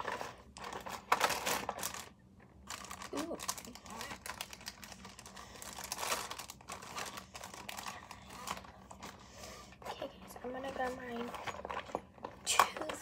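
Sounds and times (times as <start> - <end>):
makeup containers clicking and rustling: 10.4 - 13.0.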